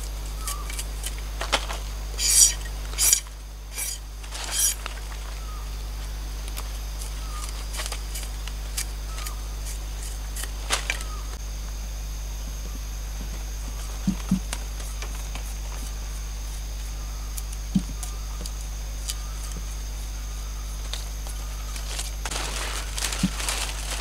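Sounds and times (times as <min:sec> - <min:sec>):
knife scraping bamboo strips: 0:00.4 - 0:05.0.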